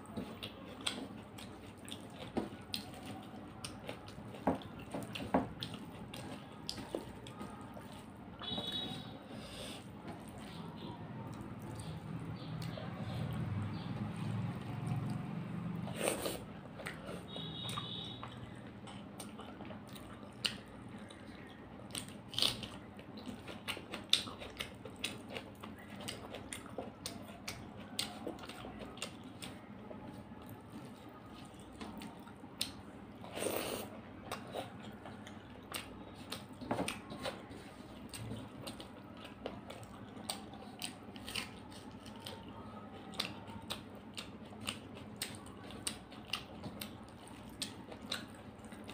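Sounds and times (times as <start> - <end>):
chewing and lip smacks: 0.0 - 9.1, 9.7 - 48.9.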